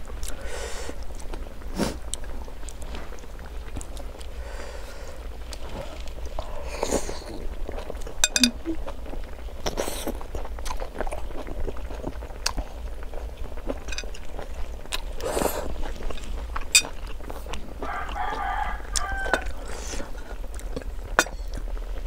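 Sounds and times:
chopsticks and spoon clinking plate: 8.2s - 8.8s, 13.8s - 14.3s, 16.0s - 17.1s
slurping noodles: 13.7s - 16.4s
rooster crowing: 17.8s - 19.8s.

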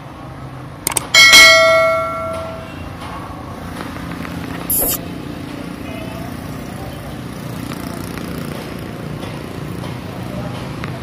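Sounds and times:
metal clang ringing like a bell: 1.2s - 2.9s
short clicks: 4.7s - 5.0s.

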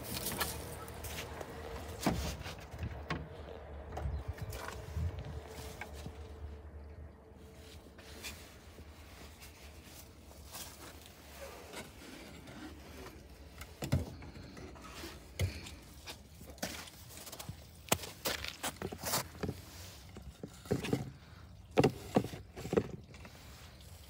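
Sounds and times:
hand scraping and rubbing: 7.4s - 21.4s.

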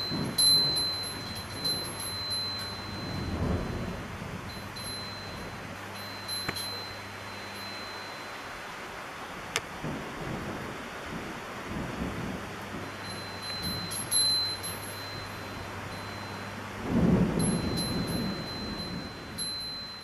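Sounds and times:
thunder rumble: 0.0s - 7.5s, 9.3s - 20.0s
high chime tinkling: 0.0s - 8.7s, 13.0s - 16.6s, 17.4s - 20.0s
heavy rain hissing: 0.0s - 20.0s.

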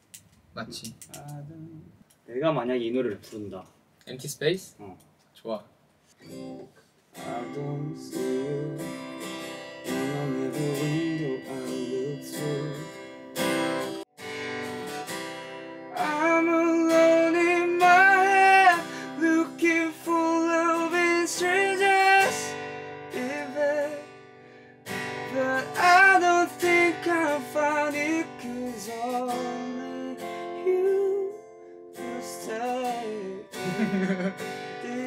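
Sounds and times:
strummed acoustic guitar: 6.2s - 35.0s
man singing a slow ballad: 7.2s - 9.2s, 9.9s - 13.1s, 16.0s - 24.1s, 25.2s - 31.4s, 32.0s - 35.0s.

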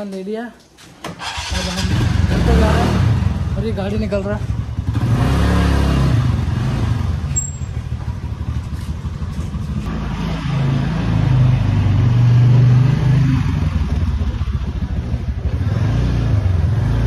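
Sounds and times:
motor scooter rumbling: 1.2s - 17.0s.

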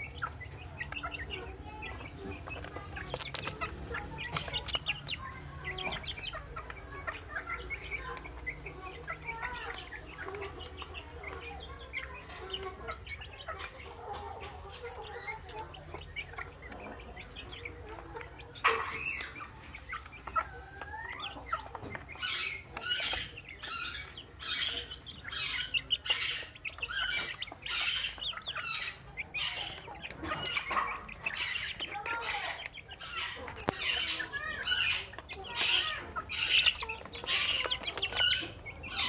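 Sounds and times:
chicks pecking at feed: 0.0s - 39.0s
chicks peeping and clucking: 0.0s - 39.0s.

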